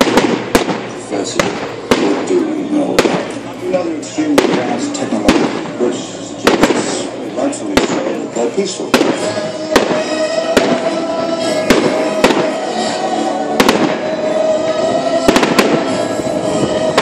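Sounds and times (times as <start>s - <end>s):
fireworks bangs: 0.0s - 3.4s, 4.2s - 5.8s, 6.4s - 8.2s, 8.8s - 17.0s
fireworks crackling: 0.0s - 17.0s
background music with held note: 8.5s - 17.0s.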